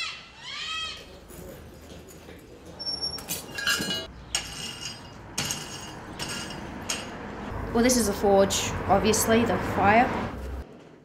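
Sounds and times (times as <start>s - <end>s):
iron poker stirring coal: 4.2s - 7.3s.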